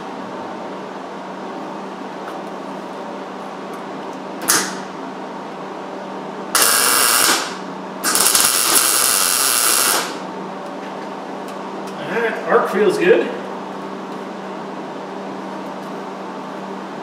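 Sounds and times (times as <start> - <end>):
steady low hum: 0.0 - 17.0
welding arc hissing: 6.5 - 10.2.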